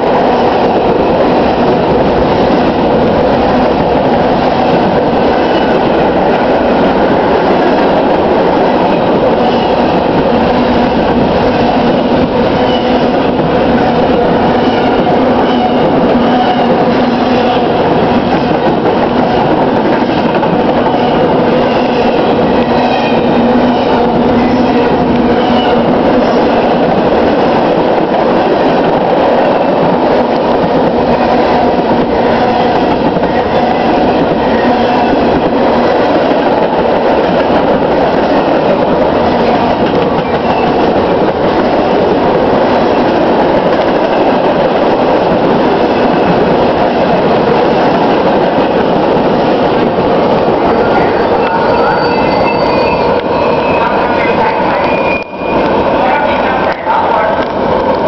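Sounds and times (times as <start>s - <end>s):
freight train wheels rumbling: 0.0s - 58.0s
high wheel squeals: 51.4s - 54.0s.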